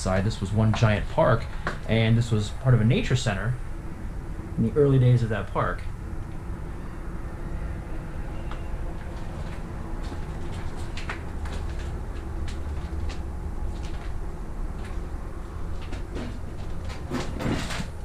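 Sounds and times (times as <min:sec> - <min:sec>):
steady low rumble: 0:00.0 - 0:18.0
footsteps on debris: 0:09.0 - 0:14.2.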